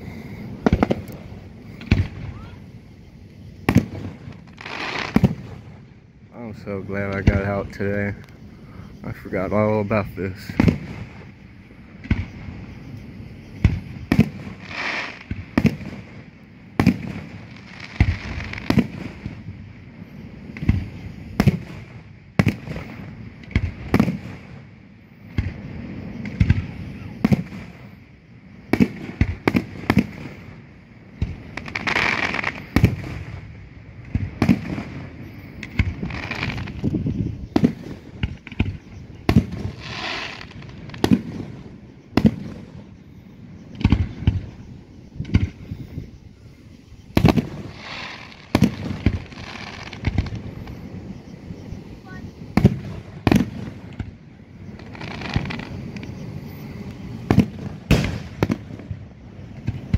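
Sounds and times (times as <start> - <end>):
fireworks booming: 0.0 - 59.9
fireworks hissing: 0.0 - 59.9.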